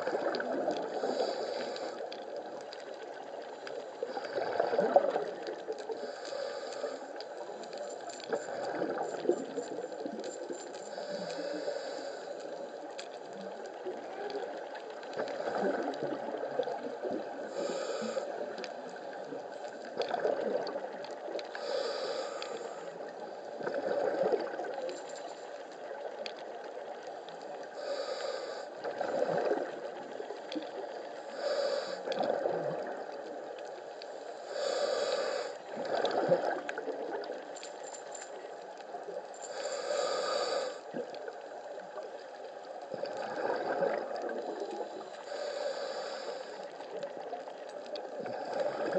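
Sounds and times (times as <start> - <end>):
diver breathing bubbles: 0.0 - 2.2, 4.0 - 13.1, 15.1 - 18.6, 19.9 - 25.5, 27.8 - 33.3, 34.1 - 37.4, 39.5 - 41.4, 42.9 - 47.2, 48.1 - 48.9
underwater water noise: 0.0 - 48.9.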